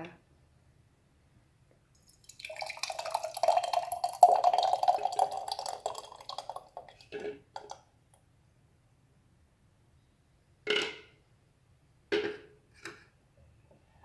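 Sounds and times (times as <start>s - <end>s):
thick paste pouring and plopping: 2.0s - 7.8s.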